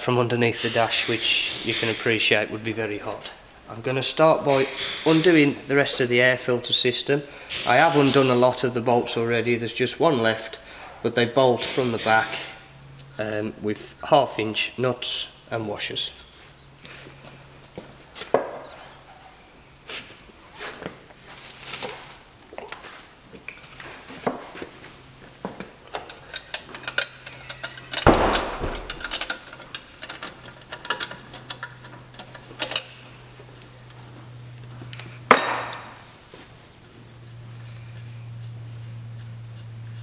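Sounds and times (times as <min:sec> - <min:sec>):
steady low hum: 0:00.0 - 0:40.0
spanner clinking on nut: 0:26.0 - 0:33.0.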